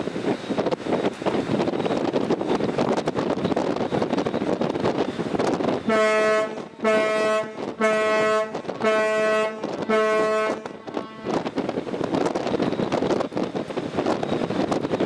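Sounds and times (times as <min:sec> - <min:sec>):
wind rushing on microphone: 0:00.0 - 0:15.0
ship horn blasts: 0:05.8 - 0:11.7.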